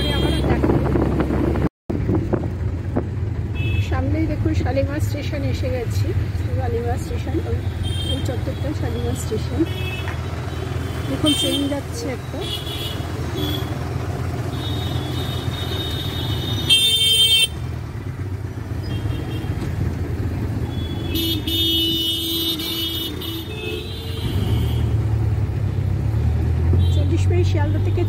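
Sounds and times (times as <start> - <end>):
vehicle horns honking: 0.0 - 0.7, 3.5 - 4.0, 7.6 - 13.8, 14.4 - 17.7, 18.8 - 19.6, 20.6 - 25.0
engine and road rumble: 0.0 - 28.0.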